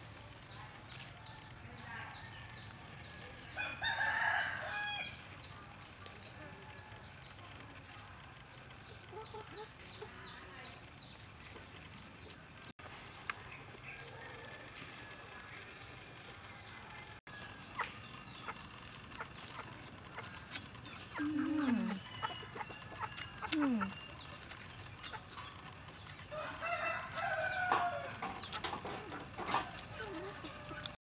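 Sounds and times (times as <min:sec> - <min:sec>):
chickens clucking: 0:00.0 - 0:12.7, 0:16.7 - 0:31.0
person humming while eating: 0:21.2 - 0:22.0.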